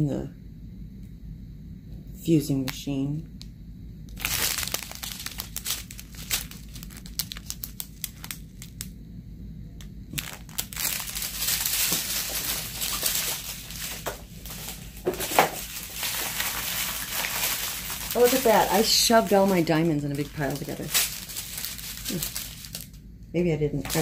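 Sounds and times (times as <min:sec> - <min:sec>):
plastic bags crinkling: 0:04.1 - 0:08.9, 0:10.1 - 0:23.0, 0:23.8 - 0:24.0.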